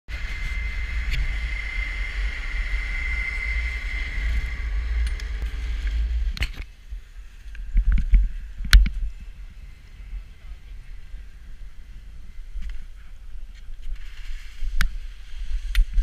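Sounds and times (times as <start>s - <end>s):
skis sliding on snow: 0.1s - 6.4s, 13.5s - 16.0s
chairlift high whine: 0.1s - 15.8s
wind on microphone: 0.1s - 16.0s.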